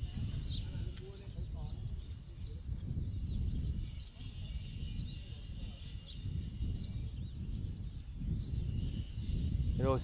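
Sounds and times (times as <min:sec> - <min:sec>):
small bird chirping: 0:00.0 - 0:10.0
wind noise on microphone: 0:00.0 - 0:10.0.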